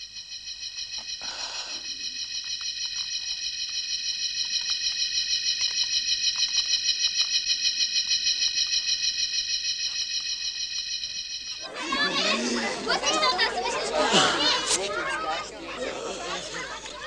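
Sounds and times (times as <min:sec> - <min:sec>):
faint clicks: 0:00.9 - 0:09.1.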